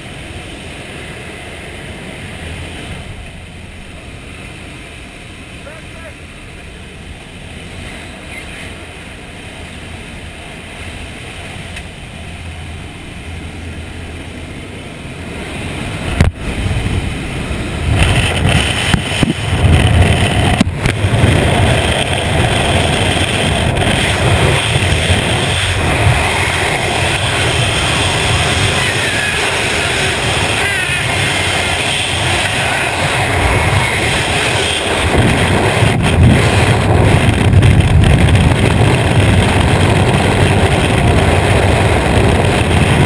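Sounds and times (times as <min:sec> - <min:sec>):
small plane engine drone: 0:00.0 - 0:43.0
wind rushing over microphone: 0:00.0 - 0:43.0.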